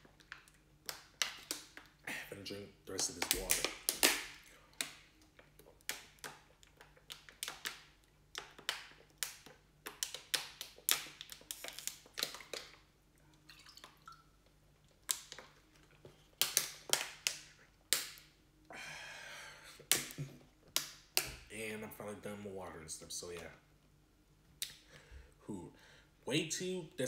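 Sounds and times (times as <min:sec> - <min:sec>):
plastic bottle clicks and crackles: 0:02.9 - 0:12.8, 0:15.0 - 0:18.3
plastic bottle crinkling: 0:09.9 - 0:12.9.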